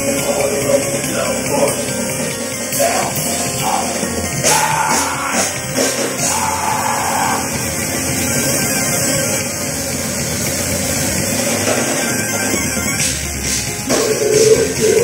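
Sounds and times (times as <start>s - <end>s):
person singing: 0.0s - 7.6s
live band playing heavy rock: 0.0s - 15.0s.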